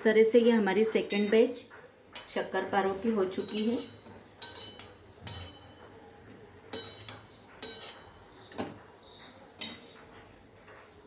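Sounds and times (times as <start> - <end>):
metal clinks against steel pan: 1.1 - 1.4, 3.3 - 5.9, 6.7 - 8.2.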